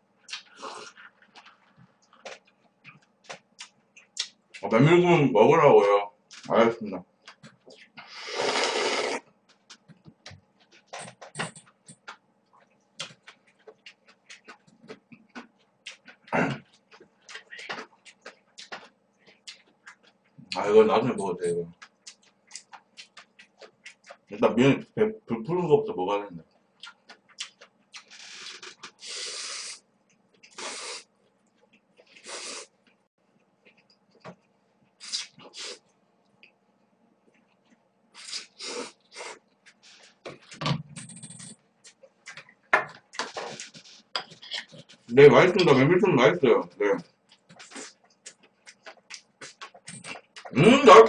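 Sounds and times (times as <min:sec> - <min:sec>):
wet chewing and lip-smacking: 0:00.2 - 0:04.6, 0:10.6 - 0:20.6, 0:21.7 - 0:24.3, 0:26.5 - 0:29.1, 0:47.2 - 0:50.6
person slurping noodles: 0:08.1 - 0:09.2, 0:28.5 - 0:29.8, 0:30.5 - 0:31.0, 0:38.2 - 0:39.4
loud noodle slurping: 0:08.2 - 0:09.2.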